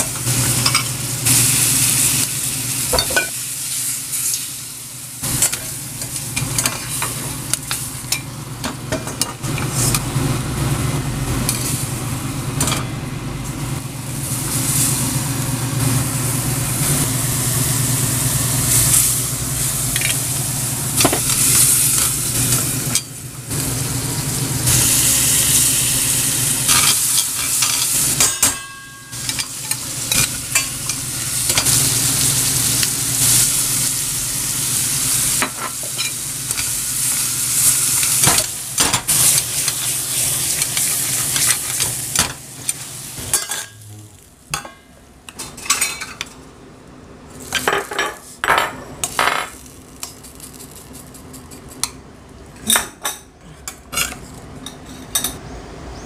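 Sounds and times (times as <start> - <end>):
food sizzling in a pan: 0.0 - 10.2, 13.5 - 44.7, 49.0 - 51.9.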